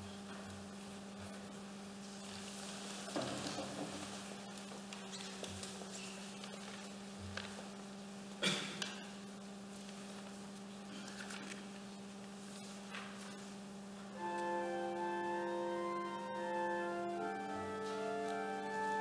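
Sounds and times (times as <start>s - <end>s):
electrical hum: 0.0s - 19.0s
soft knocks and rustles: 3.0s - 6.8s
keyboard organ chords: 14.1s - 19.0s.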